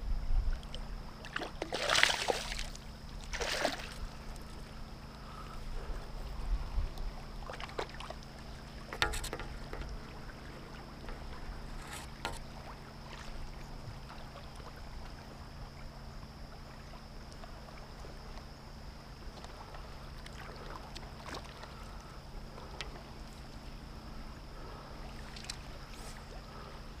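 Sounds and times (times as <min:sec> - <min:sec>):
water splashes: 0:00.6 - 0:04.6, 0:07.1 - 0:15.4.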